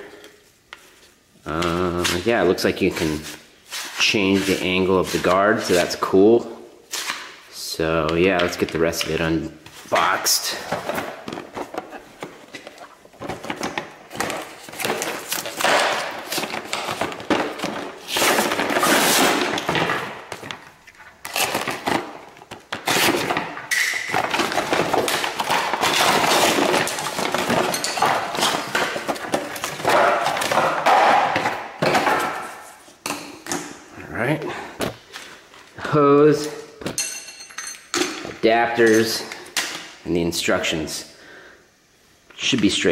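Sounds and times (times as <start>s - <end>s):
plastic packaging crinkling: 10.4s - 30.8s.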